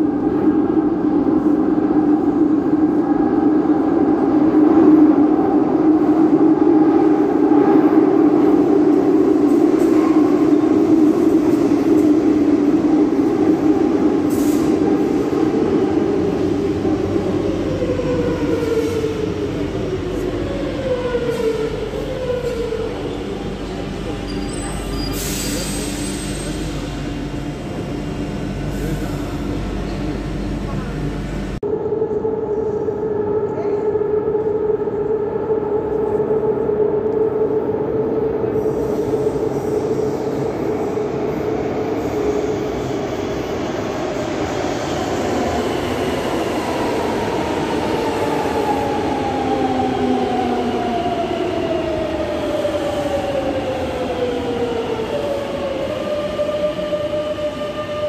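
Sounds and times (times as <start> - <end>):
wheels rumbling on rail: 5.3 - 31.6.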